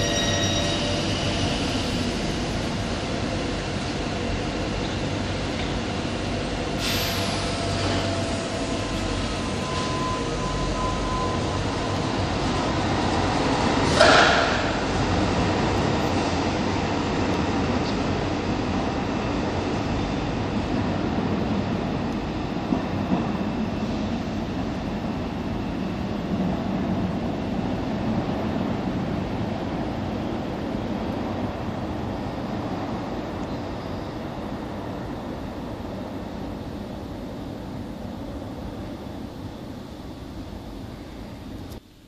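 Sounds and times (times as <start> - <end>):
train rumbling in tunnel: 0.0 - 42.0
falling hiss: 6.8 - 7.6.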